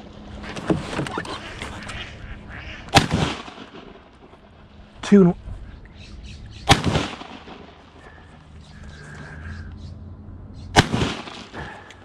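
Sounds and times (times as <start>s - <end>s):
shotgun shot with echo: 2.9s - 4.0s, 6.7s - 7.8s, 10.8s - 11.8s.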